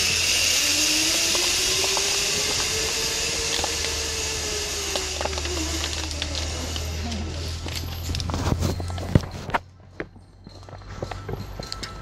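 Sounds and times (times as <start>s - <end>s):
zipline pulleys hissing on cable: 0.0s - 7.8s.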